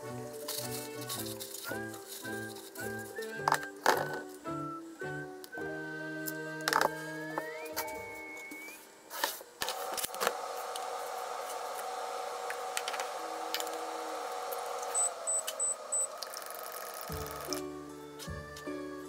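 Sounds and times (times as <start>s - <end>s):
kitchen appliance humming: 9.6s - 17.8s
short high beeps: 15.0s - 16.1s.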